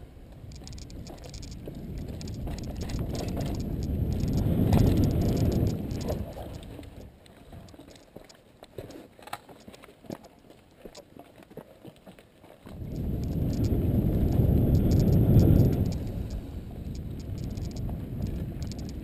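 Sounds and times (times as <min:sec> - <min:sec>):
wind buffeting microphone: 0:00.4 - 0:07.6, 0:12.7 - 0:19.0
bike clicks and rattles: 0:00.4 - 0:08.4, 0:12.9 - 0:13.8, 0:14.8 - 0:19.0.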